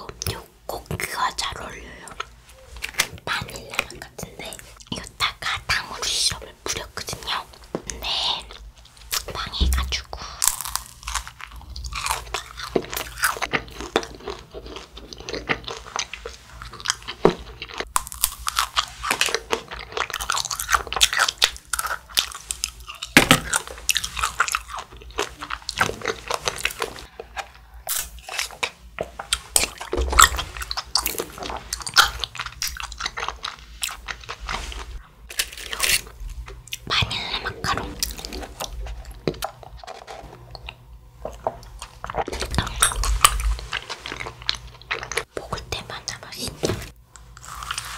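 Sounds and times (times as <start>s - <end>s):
wet chewing: 10.1s - 46.5s
macaron shell crunching: 10.2s - 16.1s, 16.7s - 34.4s.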